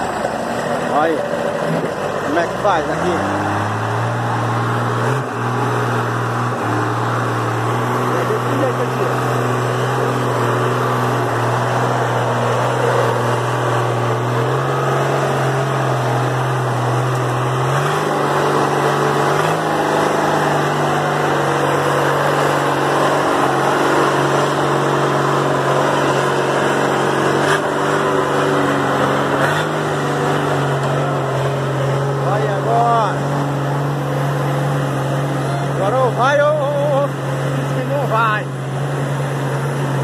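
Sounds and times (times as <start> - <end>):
truck engine running: 0.0 - 40.0.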